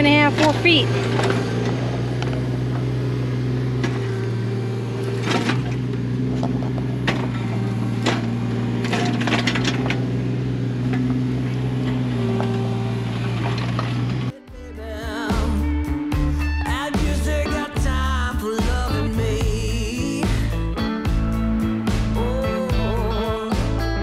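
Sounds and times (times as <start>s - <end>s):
hydraulic whine: 0.0s - 14.4s
diesel engine running under load: 0.0s - 24.0s.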